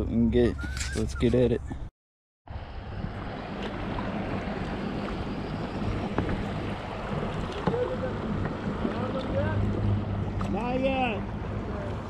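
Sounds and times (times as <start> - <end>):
small waves lapping against hull: 2.7 - 12.0.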